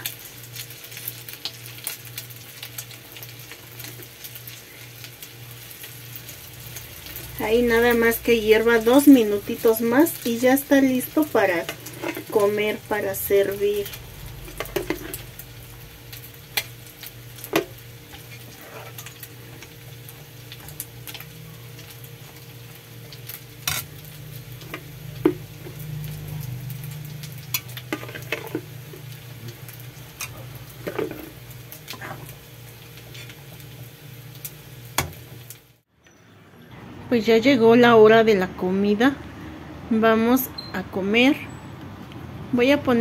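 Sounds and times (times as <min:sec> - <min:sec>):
sauce bubbling in a pan: 0:00.0 - 0:08.6, 0:13.8 - 0:35.9
metal spoon scraping a pan: 0:11.6 - 0:12.6, 0:14.5 - 0:15.3, 0:17.6 - 0:19.6, 0:23.6 - 0:24.0, 0:27.4 - 0:29.0, 0:30.1 - 0:32.4, 0:33.0 - 0:33.4
low hum: 0:12.8 - 0:32.9.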